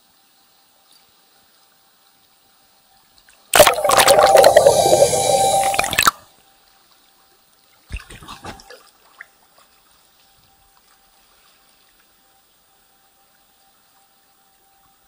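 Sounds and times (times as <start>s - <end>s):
water running hard: 3.6s - 6.2s.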